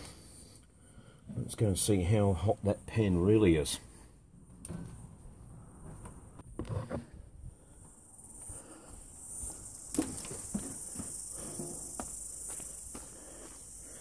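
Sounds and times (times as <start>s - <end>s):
insects chirring: 7.0s - 14.0s
footsteps on wooden deck: 8.4s - 13.6s.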